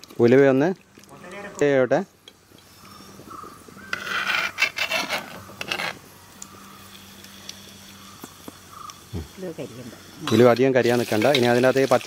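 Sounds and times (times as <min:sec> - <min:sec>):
seeds frying in oil: 0:00.0 - 0:03.9, 0:05.9 - 0:12.0
utensil scraping cooking pot: 0:03.7 - 0:06.0.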